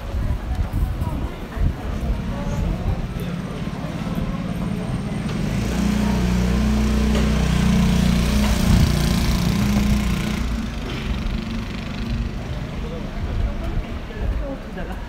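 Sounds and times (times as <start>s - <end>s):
vehicle engine running: 4.2s - 13.0s.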